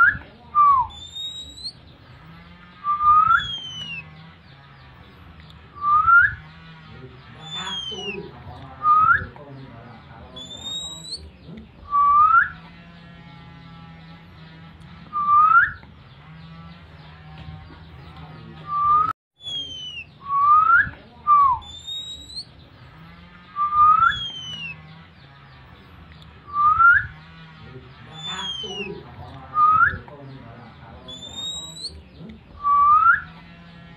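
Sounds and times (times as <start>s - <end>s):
bird rising whistled call: 3.0s - 4.0s.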